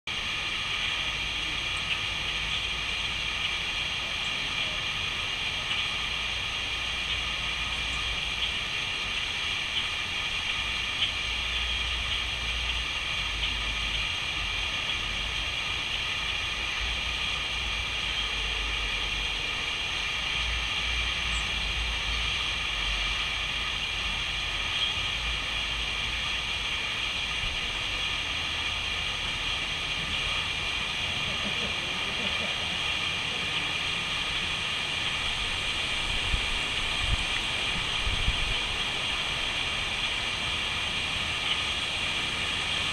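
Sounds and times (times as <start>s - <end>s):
steady outdoor hiss: 0.1s - 42.9s
wind buffeting microphone: 34.9s - 40.2s.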